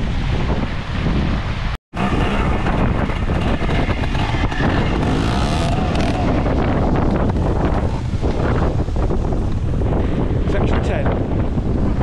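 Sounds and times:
wind buffeting microphone: 0.0 - 12.0
motorcycle engine revving: 1.9 - 8.9.

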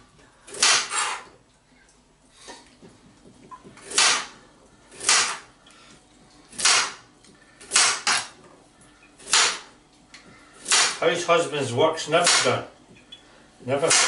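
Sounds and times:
knife chopping carrot on board: 5.0 - 5.5.

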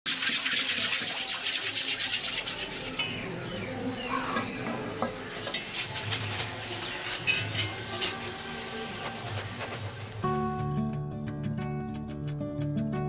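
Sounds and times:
metal skimmer scraping: 0.1 - 10.1
hot oil sizzling and crackling: 4.6 - 10.4.

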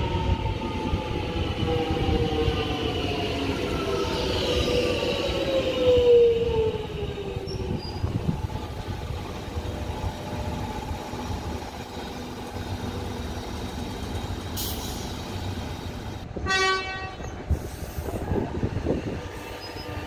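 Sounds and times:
electric train humming: 0.0 - 16.5
train horn toot: 16.4 - 17.4.

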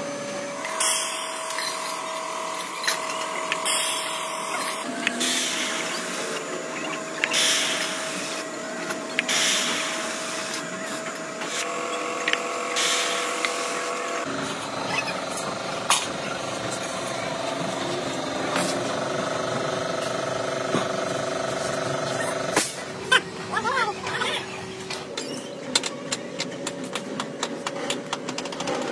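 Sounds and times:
low machine hum: 0.0 - 28.8
paint spray gun hissing: 12.8 - 14.0.

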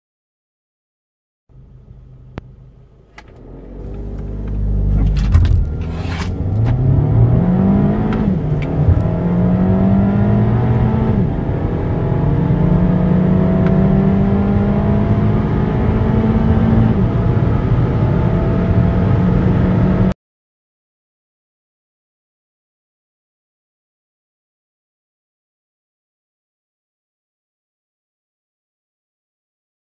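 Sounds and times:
car engine accelerating: 1.5 - 20.2.

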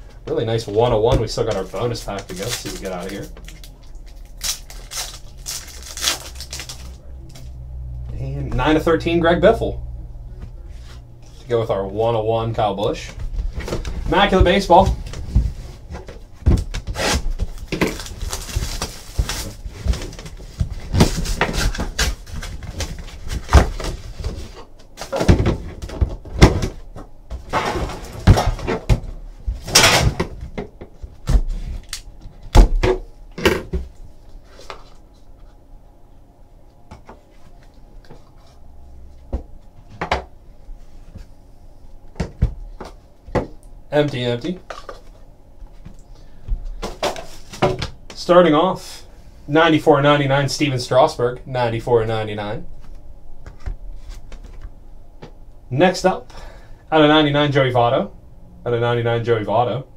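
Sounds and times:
packaging rustling: 1.4 - 7.0, 13.5 - 25.9
box cutter cutting wrap: 16.9 - 17.3.

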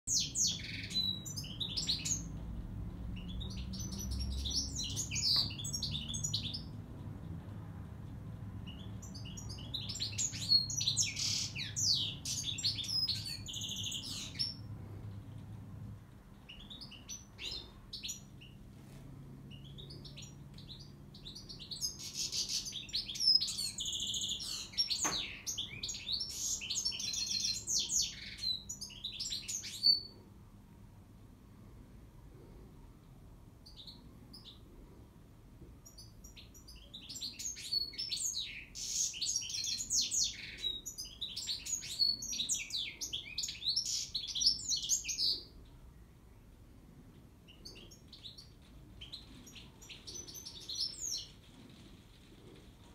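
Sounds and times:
goldfinch twittering song: 3.2 - 6.7.

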